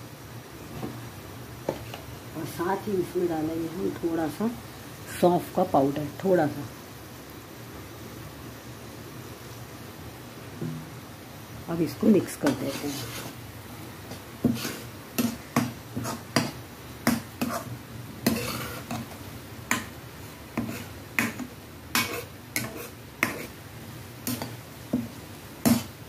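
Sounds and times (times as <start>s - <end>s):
spoon scraping and knocking a pan: 12.4s - 13.4s, 14.0s - 23.6s, 24.2s - 26.0s.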